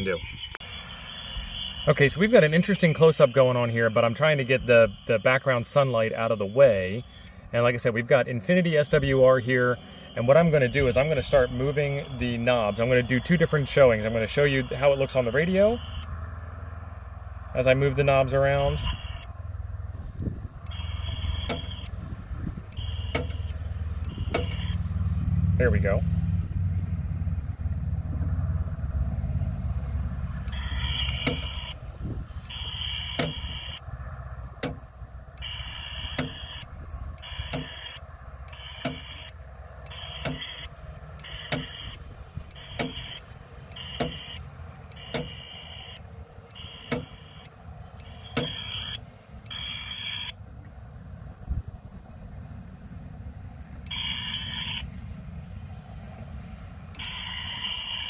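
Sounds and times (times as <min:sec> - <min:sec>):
steady low rumble: 0:00.0 - 0:57.7
short buzzing tone bursts: 0:18.8 - 0:19.4, 0:20.7 - 0:24.9, 0:30.4 - 0:33.8, 0:35.4 - 0:50.4, 0:53.9 - 0:54.9
rotary switch clicking: 0:20.2 - 0:22.0, 0:22.6 - 0:24.8, 0:30.4 - 0:31.8, 0:32.4 - 0:33.9, 0:34.5 - 0:50.4, 0:56.9 - 0:57.8.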